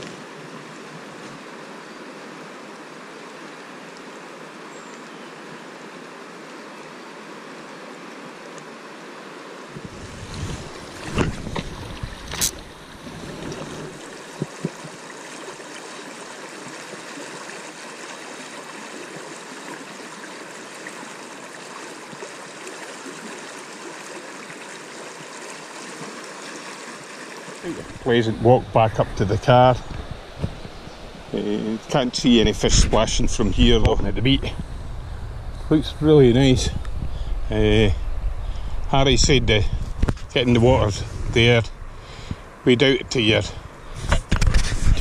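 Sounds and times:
water rushing over stones: 0.0 - 34.8.

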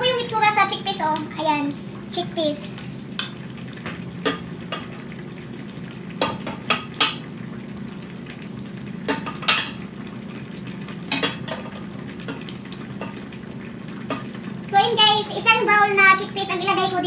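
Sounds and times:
metal ladle clinking on pot: 11.1 - 11.6.

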